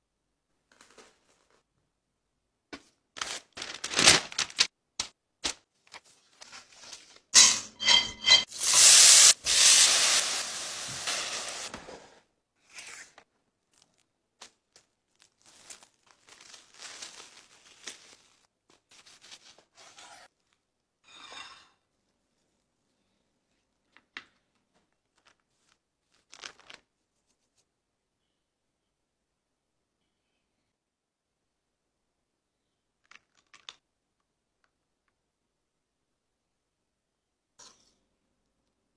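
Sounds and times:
plastic wrap crinkling: 3.2s - 6.9s, 13.6s - 19.4s, 25.0s - 26.9s.

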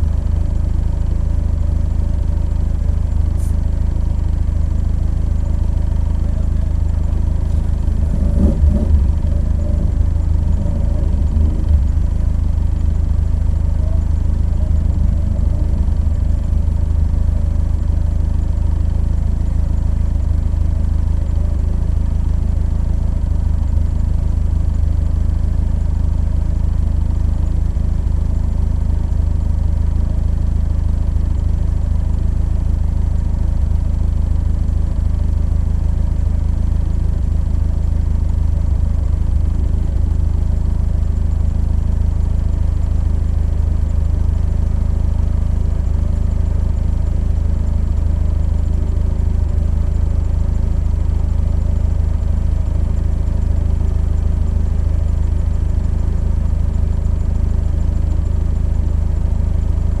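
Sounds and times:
car engine idling: 0.0s - 60.0s.

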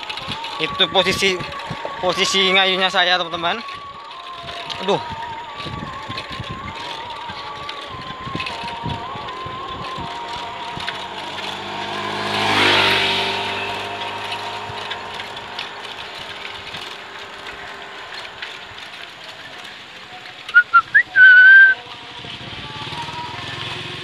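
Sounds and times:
bicycle riding on asphalt: 0.0s - 24.0s
motor vehicle passing: 7.6s - 24.0s
short high beeps: 20.6s - 21.8s.

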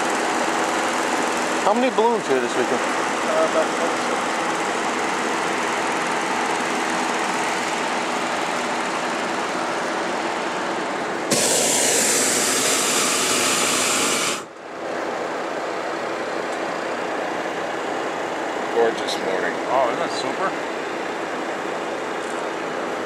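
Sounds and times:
steady background noise: 0.0s - 23.0s
propane burner hissing blast: 11.2s - 14.6s.

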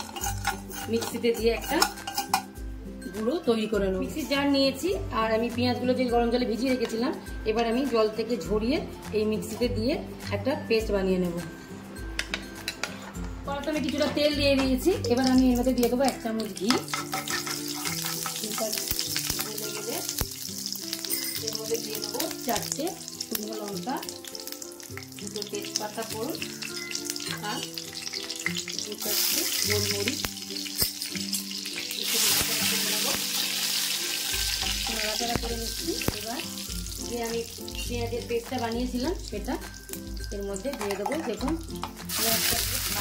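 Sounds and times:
spoon and spatula scraping: 0.0s - 2.6s, 12.2s - 14.7s, 16.4s - 22.5s, 24.2s - 36.1s, 40.6s - 42.6s
oil sizzling: 0.0s - 3.1s, 12.0s - 43.0s.

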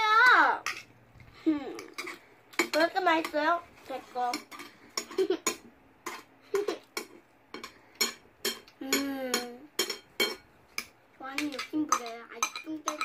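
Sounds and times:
cutlery clinking on a plate: 4.3s - 13.0s.

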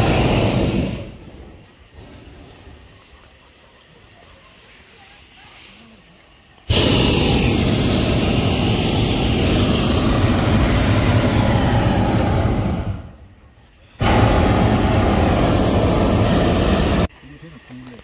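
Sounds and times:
propane burner blasting: 0.0s - 2.9s, 6.7s - 13.4s, 14.0s - 17.1s.

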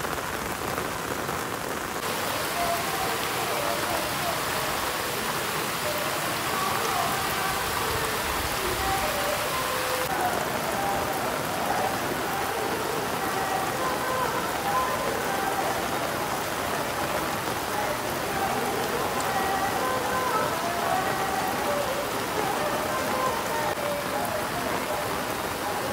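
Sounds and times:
heavy rain on pavement: 0.0s - 25.9s
faint voices: 2.0s - 25.9s.

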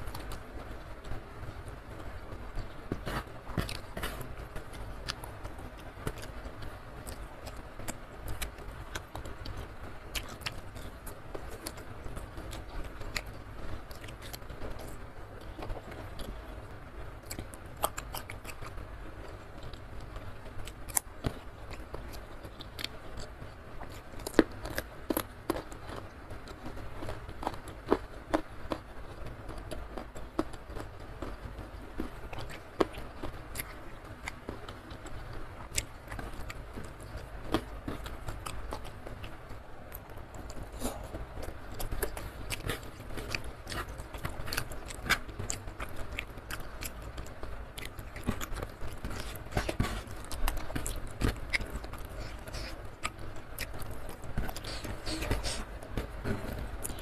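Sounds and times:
chewing and crunching food: 0.0s - 57.0s
steady low hum: 0.0s - 57.0s.

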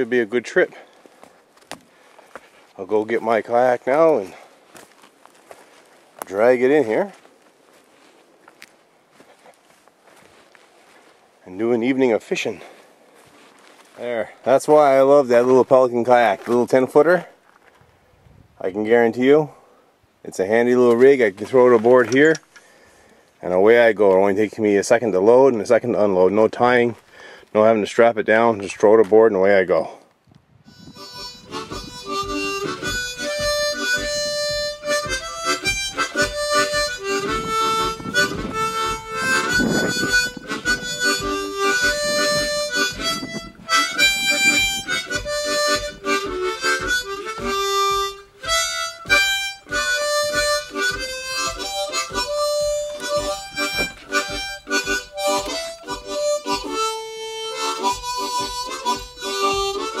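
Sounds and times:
harmonica playing a tune: 30.6s - 60.0s
steady beat: 30.7s - 60.0s.

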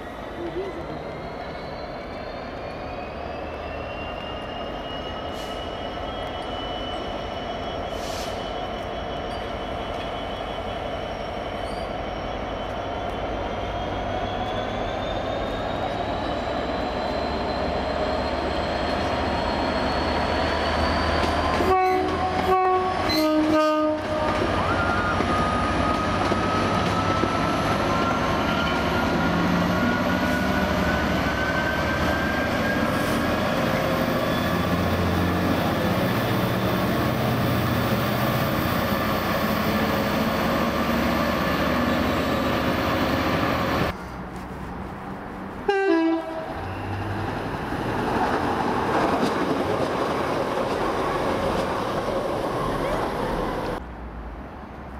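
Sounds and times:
diesel locomotive engine working: 0.0s - 53.8s
brief train horn note: 21.6s - 24.5s, 45.7s - 46.5s
two-tone locomotive horn: 21.6s - 25.5s, 45.7s - 46.6s.

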